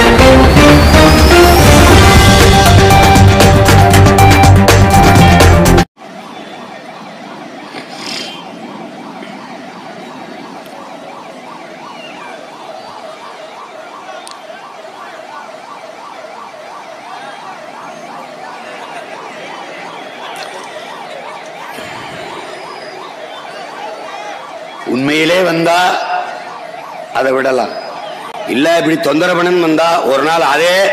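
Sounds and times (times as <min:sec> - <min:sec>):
news intro music: 0:00.0 - 0:05.9
ambulance siren wailing: 0:00.0 - 0:30.9
crowd background: 0:00.0 - 0:30.9.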